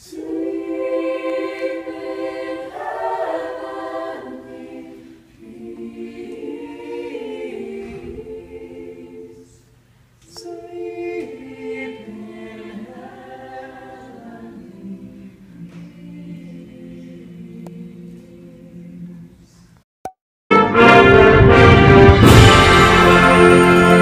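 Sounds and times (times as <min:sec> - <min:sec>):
group singing unaccompanied: 0:00.0 - 0:09.6, 0:10.3 - 0:19.3.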